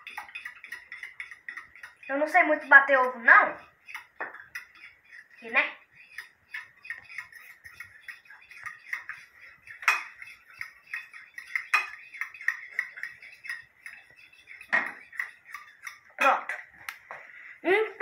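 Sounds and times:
fork clinking on plate: 0.0s - 2.1s, 6.1s - 16.1s.

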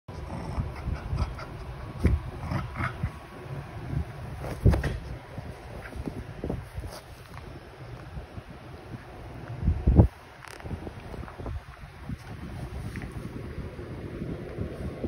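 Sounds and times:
dog noises: 0.1s - 4.8s
small dogs play-fighting: 0.1s - 8.0s.

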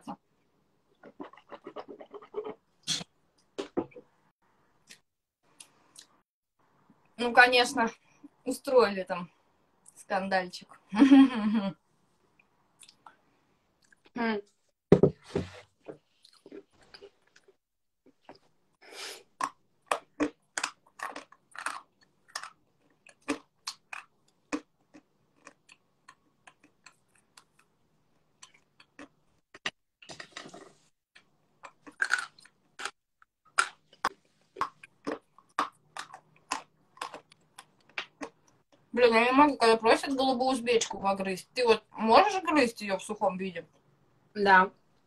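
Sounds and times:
person chewing crunchy clay: 19.2s - 29.8s, 30.4s - 38.7s.

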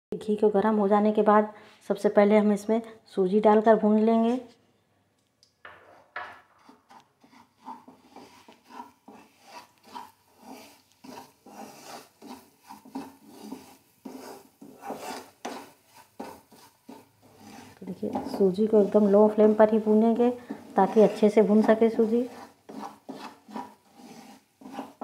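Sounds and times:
spatula scraping a pan: 5.8s - 25.0s.

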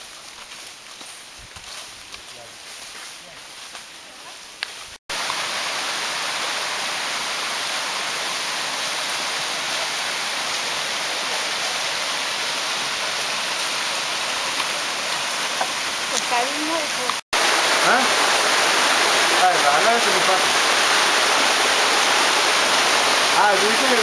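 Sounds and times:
stream water rushing: 5.1s - 24.0s.

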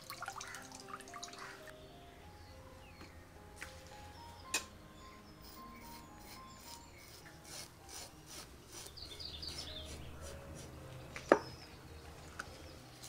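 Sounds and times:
knife scraping fish scales: 5.5s - 10.7s.

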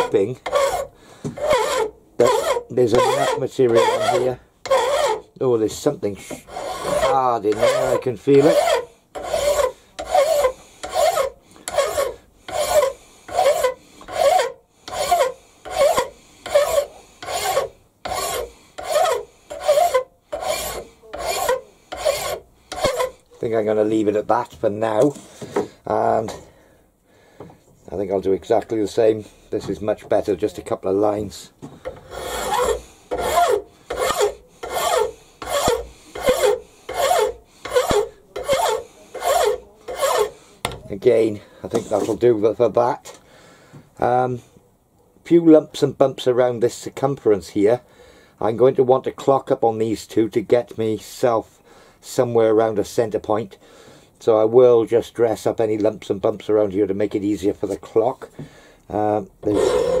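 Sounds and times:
hand file rasping on metal: 0.0s - 5.3s, 6.1s - 23.2s, 31.9s - 40.4s, 59.4s - 60.0s.

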